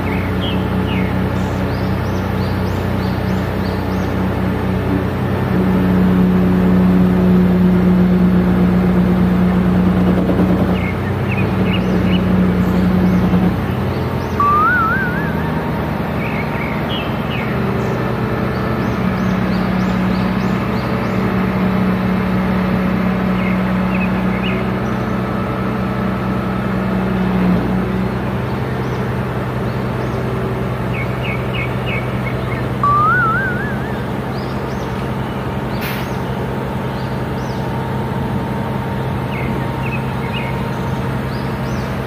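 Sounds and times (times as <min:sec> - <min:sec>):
birds chirping: 0:00.0 - 0:04.7, 0:10.6 - 0:21.8, 0:23.2 - 0:25.5, 0:28.4 - 0:37.8, 0:39.0 - 0:42.0
crane engine running: 0:00.0 - 0:42.0
rising warbled bird call: 0:14.0 - 0:17.6, 0:31.9 - 0:35.0.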